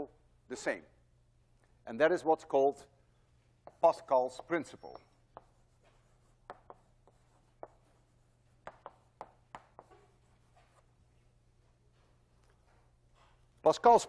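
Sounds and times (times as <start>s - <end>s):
chalk tapping and scraping: 3.4s - 13.7s.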